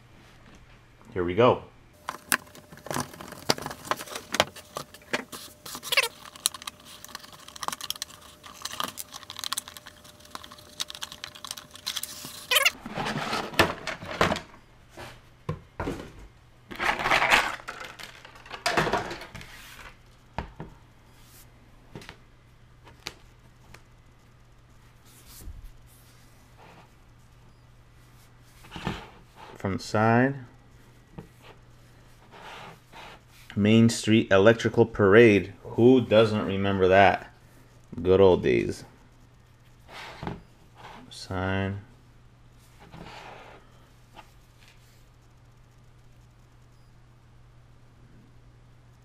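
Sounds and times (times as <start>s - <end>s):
packaging rustling: 2.0s - 13.5s.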